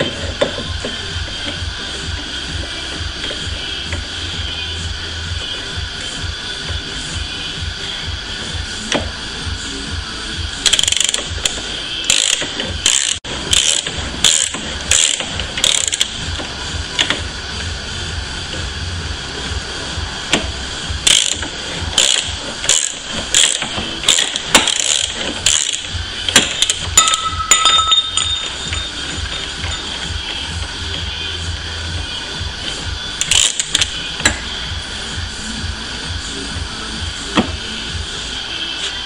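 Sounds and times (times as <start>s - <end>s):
ratcheting pipe cutter clicking: 10.6s - 17.2s, 20.3s - 29.8s, 33.2s - 34.4s.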